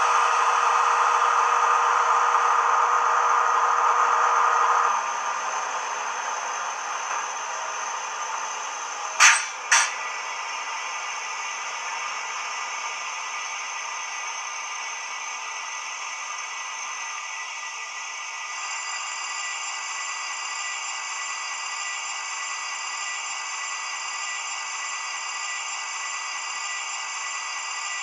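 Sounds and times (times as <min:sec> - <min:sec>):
diesel locomotive engine running: 0:00.0 - 0:18.8.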